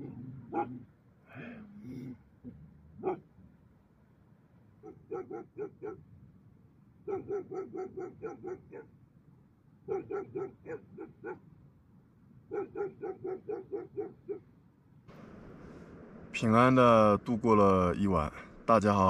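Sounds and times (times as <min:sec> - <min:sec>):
dogs barking: 0:00.0 - 0:00.9, 0:03.0 - 0:03.3, 0:04.8 - 0:06.1, 0:07.0 - 0:08.9, 0:09.9 - 0:11.4, 0:12.5 - 0:14.5.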